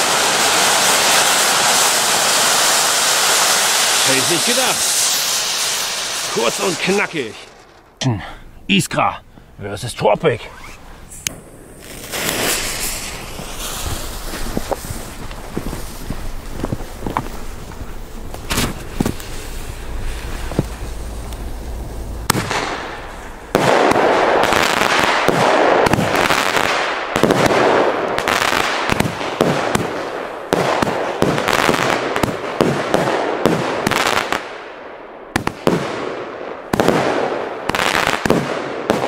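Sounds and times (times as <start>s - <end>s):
fireworks launching and crackling: 0.0s - 8.1s, 9.7s - 39.0s
firework pops: 10.6s - 21.5s, 22.2s - 34.4s.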